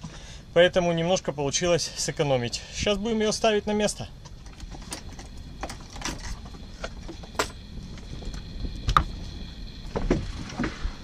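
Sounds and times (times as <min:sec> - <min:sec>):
low rumble: 0:04.4 - 0:11.0.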